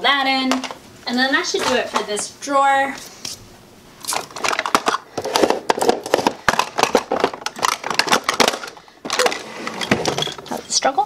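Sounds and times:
plastic compacts clattering: 4.1s - 10.7s.

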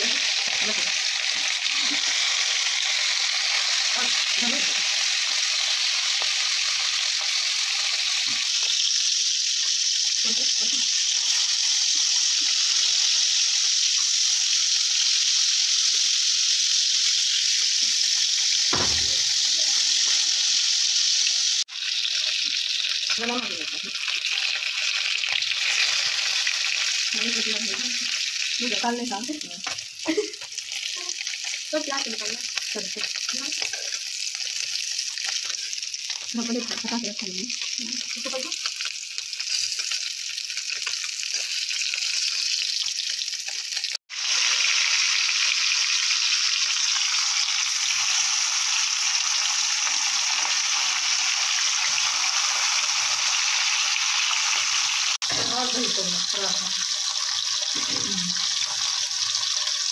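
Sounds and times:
fish sizzling in hot oil: 0.0s - 59.9s
low thump: 18.8s - 19.4s.

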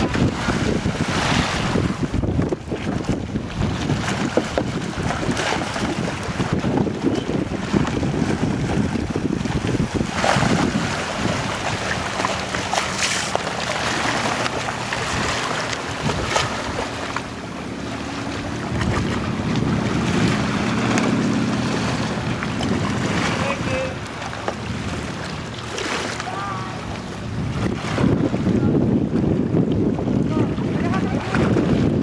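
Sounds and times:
paddle splashes: 0.0s - 32.0s
water lapping: 0.0s - 32.0s
wind buffeting microphone: 0.0s - 32.0s
low steady engine hum: 8.2s - 27.8s.

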